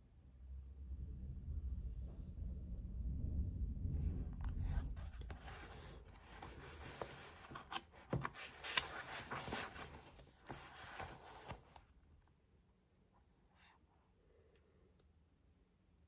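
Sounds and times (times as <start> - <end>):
paper rustling: 4.6 - 12.0.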